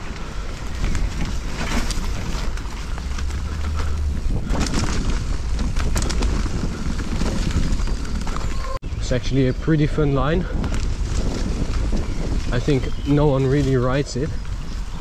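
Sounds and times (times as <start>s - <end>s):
bike clattering over bumps: 0.0s - 8.7s
tyres rolling over dirt: 0.0s - 9.2s, 9.9s - 15.0s
wind rumble on microphone: 0.0s - 15.0s.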